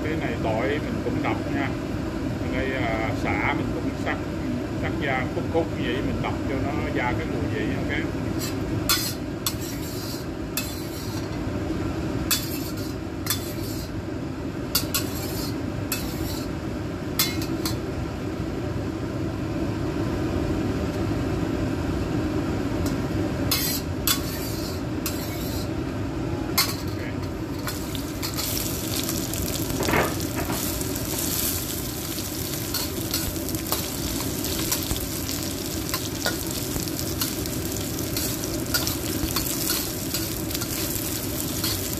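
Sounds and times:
aromatics sizzling in hot oil: 0:00.0 - 0:18.0, 0:22.8 - 0:25.8, 0:26.6 - 0:41.9
metal spatula scraping a wok: 0:08.4 - 0:11.3, 0:12.3 - 0:14.0, 0:14.8 - 0:16.5, 0:23.5 - 0:25.7, 0:26.6 - 0:41.9.

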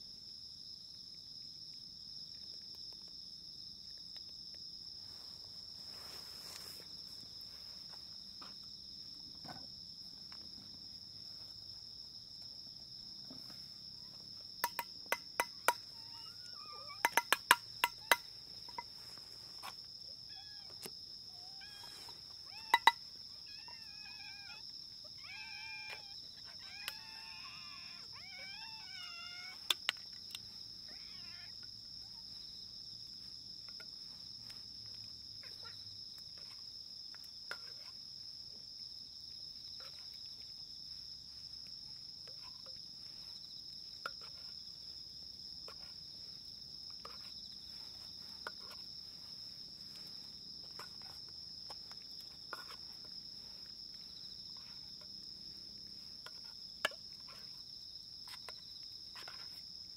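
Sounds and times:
insects singing: 0:01.9 - 0:59.9
faint cat meow: 0:20.2 - 0:29.8, 0:30.8 - 0:32.2.

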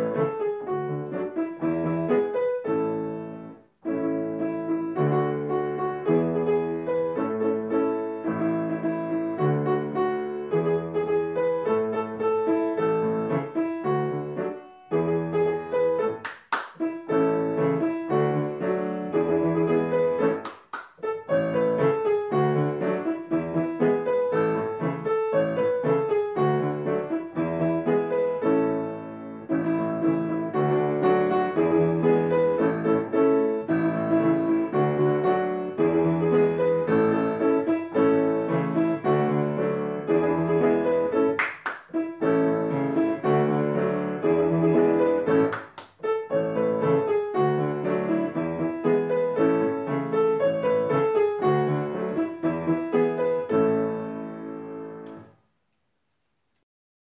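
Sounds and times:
lively piano melody: 0:00.0 - 0:55.4
sharp hand claps: 0:16.2 - 0:16.9, 0:20.4 - 0:21.1, 0:41.4 - 0:42.0, 0:45.4 - 0:46.0.

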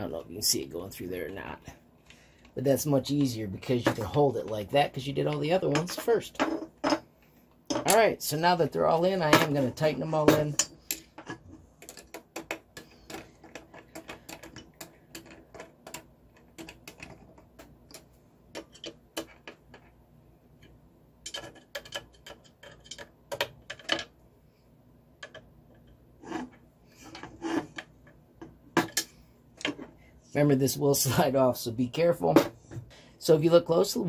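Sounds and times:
metal parts knocking: 0:03.2 - 0:07.1, 0:08.9 - 0:19.9, 0:20.6 - 0:24.2.

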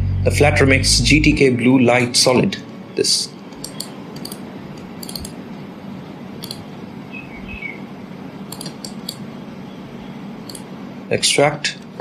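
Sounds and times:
low hum: 0:00.0 - 0:02.8
computer mouse clicking: 0:03.5 - 0:04.4, 0:05.0 - 0:05.4, 0:06.4 - 0:06.6, 0:08.5 - 0:09.2, 0:10.5 - 0:10.7.

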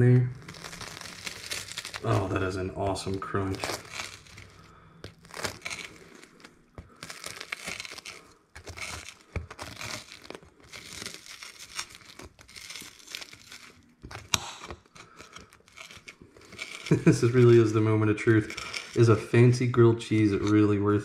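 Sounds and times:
knife sawing through toasted bread: 0:03.4 - 0:19.2.

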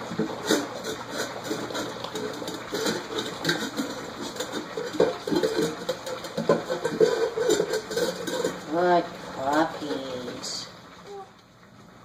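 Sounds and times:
puppies lapping from metal bowl: 0:00.0 - 0:11.2.

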